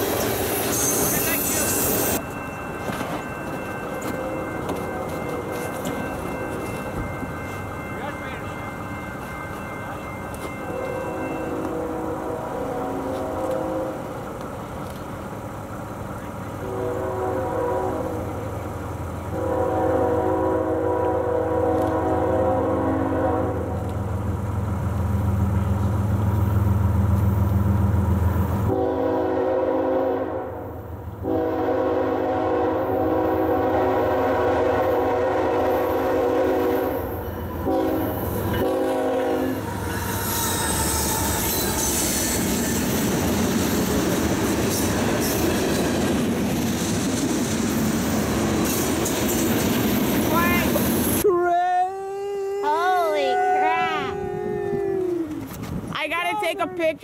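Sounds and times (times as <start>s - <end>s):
train wheels rumbling on rail: 0.0s - 51.3s
locomotive horn blasts: 10.7s - 14.0s, 16.6s - 18.4s, 19.3s - 23.8s, 28.7s - 39.6s.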